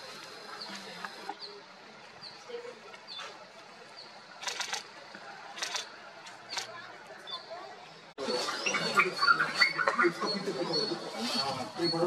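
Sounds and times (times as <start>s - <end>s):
camera shutter clicks: 4.4s - 4.8s.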